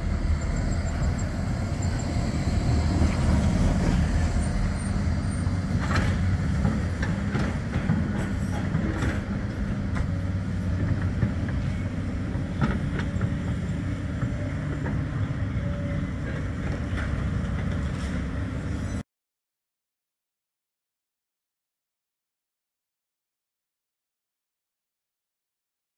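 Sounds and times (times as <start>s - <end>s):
tram rumbling on rails: 0.0s - 19.0s.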